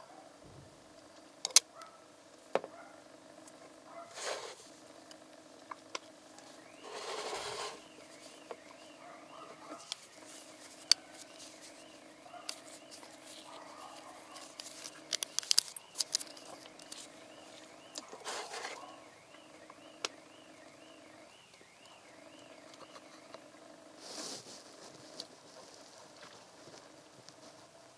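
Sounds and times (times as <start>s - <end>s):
faint steady hum: 0.0s - 27.9s
plastic rustles: 9.6s - 17.1s.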